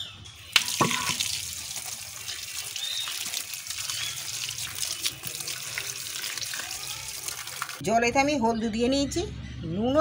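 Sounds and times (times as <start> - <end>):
tap water splashing on concrete: 0.5 - 7.8.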